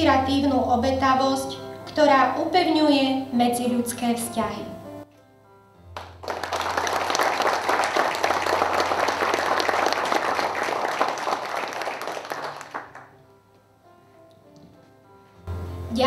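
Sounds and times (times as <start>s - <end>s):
people applauding: 6.0s - 13.2s.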